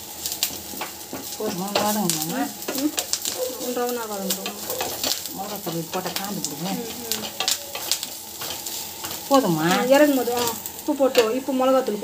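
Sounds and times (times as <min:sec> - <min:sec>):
onions sizzling in oil: 0:00.0 - 0:12.0
spatula scraping pan: 0:00.4 - 0:11.4.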